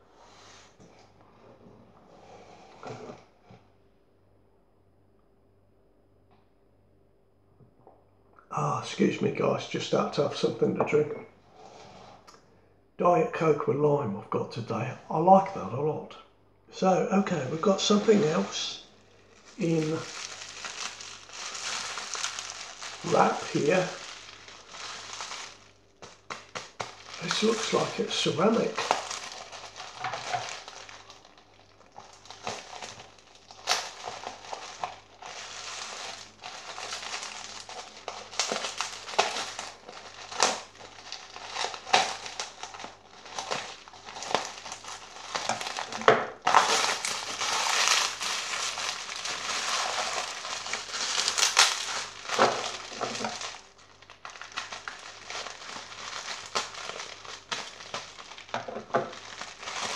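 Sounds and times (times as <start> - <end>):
bubble wrap crinkling: 16.8 - 59.9.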